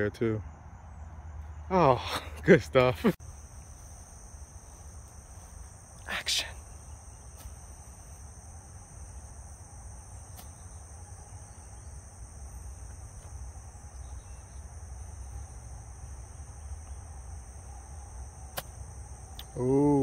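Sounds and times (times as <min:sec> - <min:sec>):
insects buzzing: 0:00.0 - 0:20.0.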